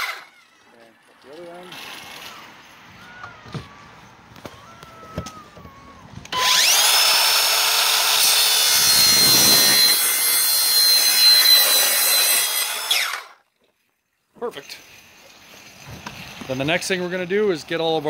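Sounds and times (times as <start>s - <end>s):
saw cutting vinyl rail: 0.0s - 2.6s, 6.2s - 13.4s
circular saw whining: 0.0s - 13.4s.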